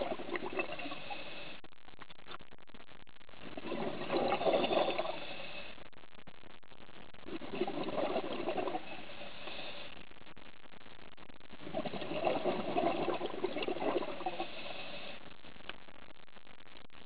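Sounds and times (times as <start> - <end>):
exhaled bubbles gurgling: 0.0 - 1.5, 3.4 - 5.6, 7.1 - 9.8, 11.4 - 15.2
steady underwater hiss: 0.0 - 1.6, 3.4 - 5.8, 7.2 - 10.0, 11.6 - 15.3.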